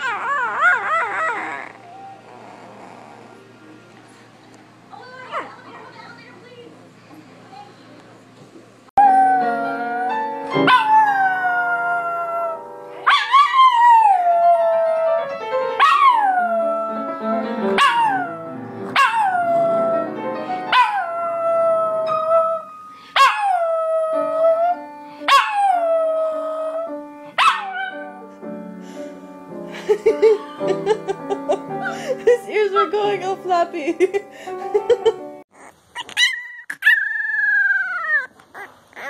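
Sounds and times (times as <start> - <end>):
dog howling: 0.0 - 3.4, 15.8 - 17.2, 17.8 - 18.4, 36.0 - 39.0
piano music: 0.6 - 3.9, 9.0 - 35.5.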